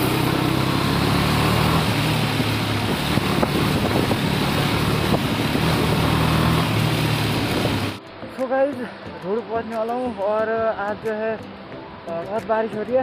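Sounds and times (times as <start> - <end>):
motorcycle engine running: 0.0 - 8.0
wind rushing over microphone: 0.1 - 8.0.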